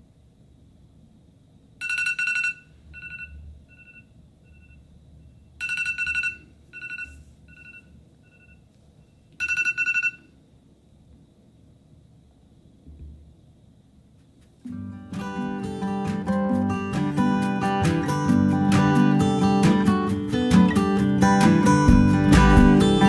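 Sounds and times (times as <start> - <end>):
phone alarm rapid high beeps: 1.8 - 4.8, 5.6 - 8.6, 9.4 - 10.3.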